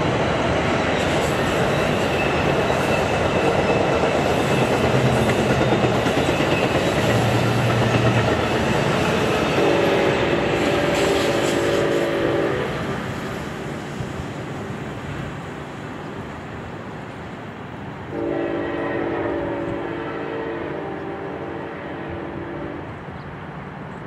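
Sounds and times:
train rumble and wheel noise: 0:00.0 - 0:24.0
train horn: 0:09.4 - 0:13.0, 0:18.1 - 0:23.0.

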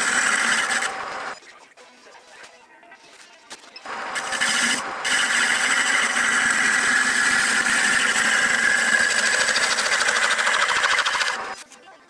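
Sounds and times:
lathe cutting wood: 0:00.0 - 0:01.4, 0:03.9 - 0:11.6.

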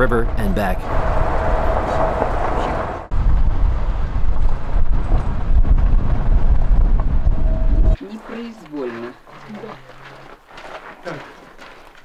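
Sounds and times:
wind buffeting microphone: 0:00.0 - 0:08.0.

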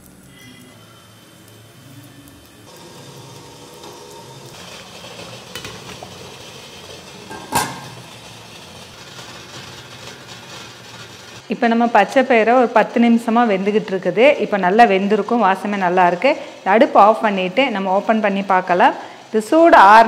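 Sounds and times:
metal lid clanking down: 0:07.0 - 0:08.0.

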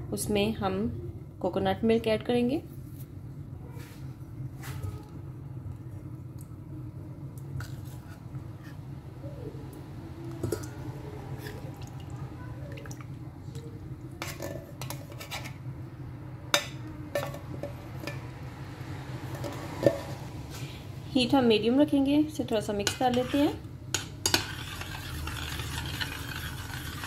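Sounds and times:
steady low hum: 0:00.0 - 0:27.0
spoon stirring in a saucepan: 0:07.4 - 0:09.0, 0:10.3 - 0:15.7, 0:22.7 - 0:27.0
metal spoon scraping a can: 0:14.2 - 0:15.6, 0:22.8 - 0:27.0.

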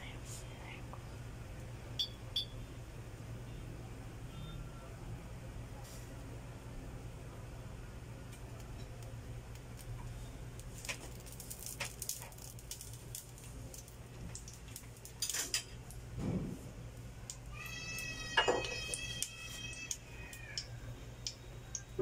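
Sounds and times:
low steady hum: 0:00.0 - 0:22.0
high-pitched cry: 0:17.5 - 0:20.7
pot and bottle clinking: 0:18.4 - 0:19.0.

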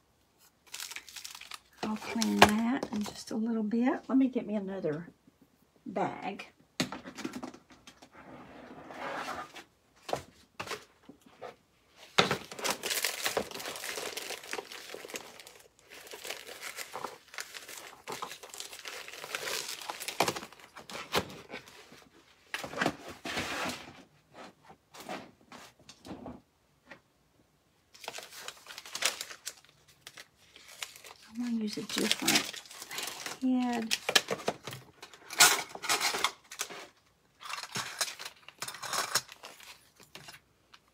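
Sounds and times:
plastic bags crinkling and rustling: 0:00.4 - 0:03.3, 0:10.2 - 0:23.5, 0:27.9 - 0:40.9.

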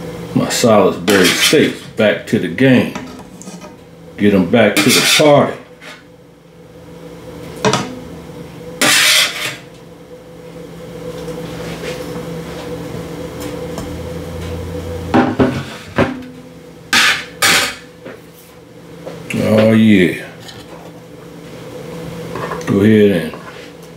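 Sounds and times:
steady low hum: 0:00.0 - 0:23.9
metal spatula scraping sheet pan: 0:04.8 - 0:06.0, 0:08.8 - 0:09.6.

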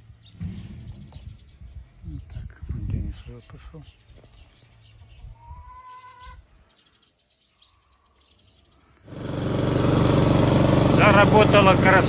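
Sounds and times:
lawn mower engine running: 0:09.1 - 0:12.0.

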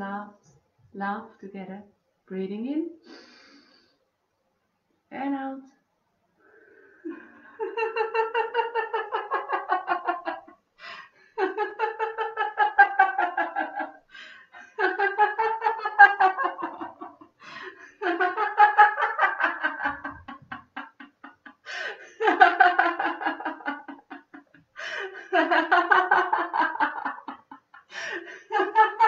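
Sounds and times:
woman laughing: 0:07.1 - 0:10.6, 0:11.4 - 0:29.0.

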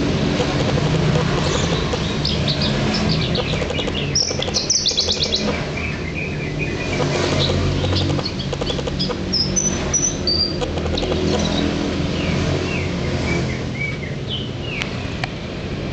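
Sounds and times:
steady low hum: 0:00.0 - 0:11.3
bird singing chirps and whistles: 0:01.4 - 0:11.6.

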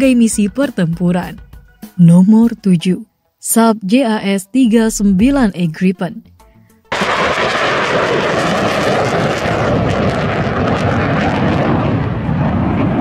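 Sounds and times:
fighter jet flying past: 0:06.9 - 0:13.0.

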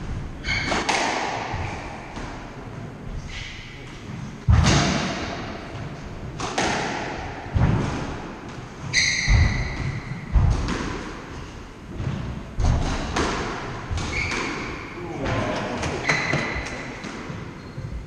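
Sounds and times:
squash ball hitting rackets and walls: 0:00.0 - 0:18.0
shoe squeak on wooden floor: 0:08.9 - 0:10.2, 0:14.1 - 0:14.7, 0:16.0 - 0:16.6, 0:17.5 - 0:18.0.

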